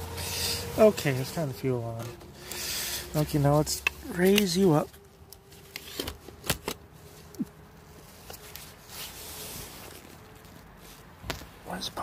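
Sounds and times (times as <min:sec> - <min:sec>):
faint steady hum: 0:00.0 - 0:12.0
soft rustling: 0:06.9 - 0:12.0.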